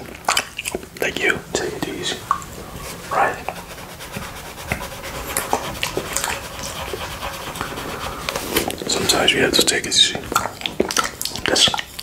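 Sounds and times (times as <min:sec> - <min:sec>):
wet mouth clicks: 0:00.1 - 0:01.1, 0:10.2 - 0:12.0.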